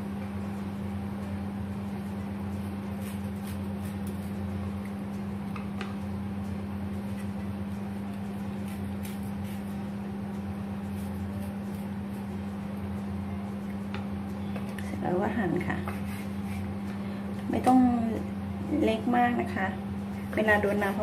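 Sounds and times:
appliance electrical hum: 0.0 - 21.0
knife on cutting board: 8.6 - 9.8, 15.8 - 16.8.

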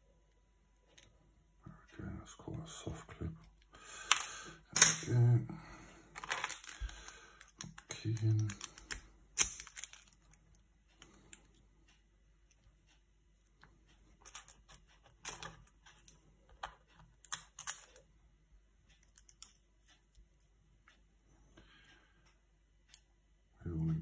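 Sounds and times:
light metallic clicks and taps: 18.9 - 21.0.

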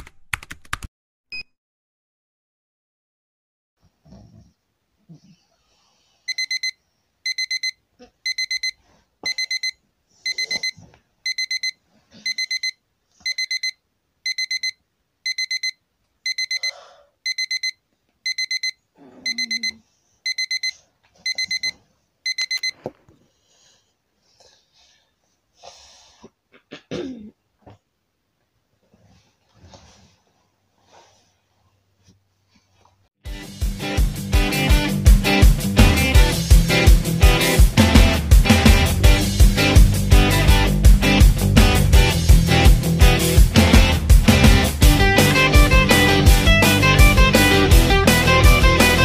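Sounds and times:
alarm clock beeping: 6.3 - 22.8.

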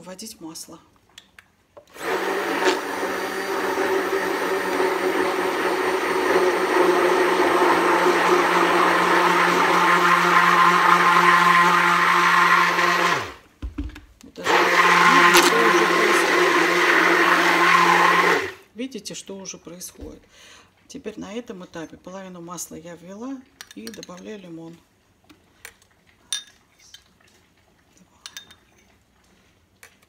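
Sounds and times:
immersion blender motor running: 1.9 - 13.4, 14.4 - 18.6.

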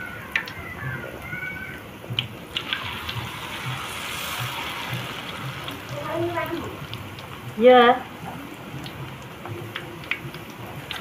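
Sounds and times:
batter sizzling in hot oil: 0.0 - 11.0
oil popping and crackling: 0.0 - 11.0.

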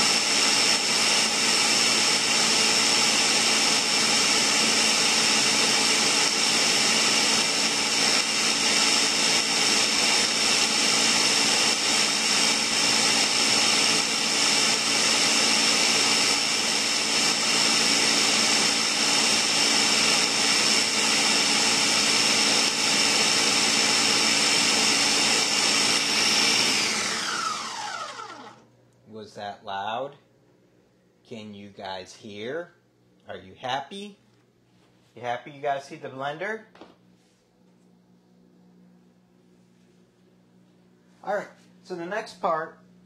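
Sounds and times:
blender motor whining: 0.0 - 28.7.

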